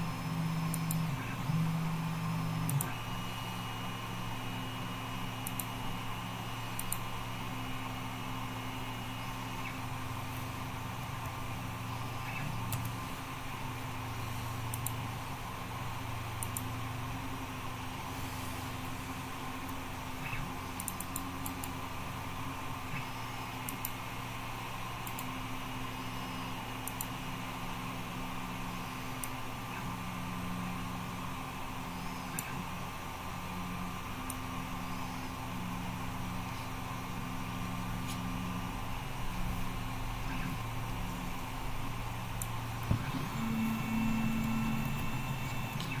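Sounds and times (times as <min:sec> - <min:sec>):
faint high whine: 0:00.0 - 0:46.0
low electrical hum: 0:00.0 - 0:46.0
mouse clicks: 0:06.8 - 0:07.0.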